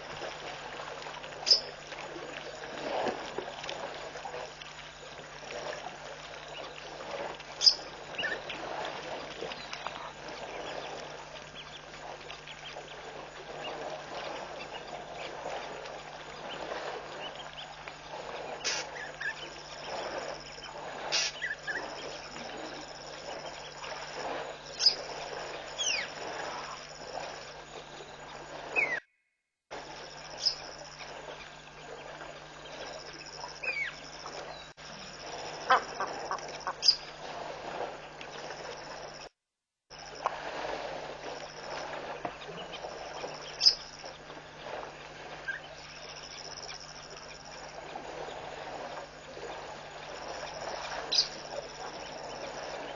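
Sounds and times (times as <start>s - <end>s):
elephant herd drinking: 0.0s - 27.4s
low electrical hum: 0.0s - 29.0s, 29.7s - 39.3s, 39.9s - 52.9s
birds giving short sharp calls: 21.1s - 21.6s.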